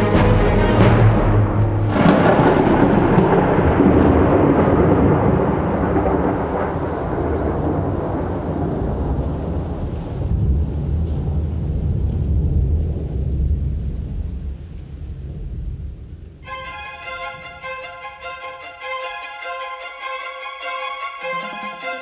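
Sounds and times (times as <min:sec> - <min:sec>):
thunder crack and rumble: 0:00.9 - 0:16.4.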